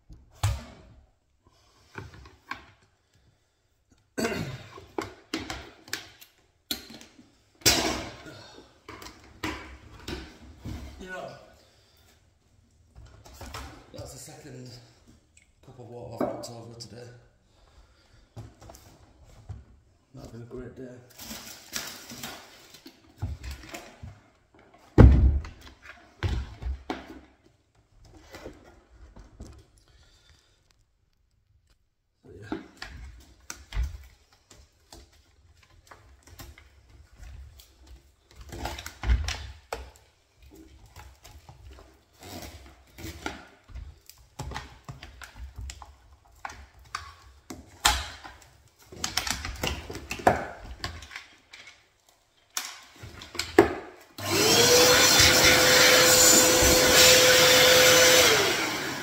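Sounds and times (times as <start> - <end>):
plastic parts clicking and knocking: 43.0 - 54.0.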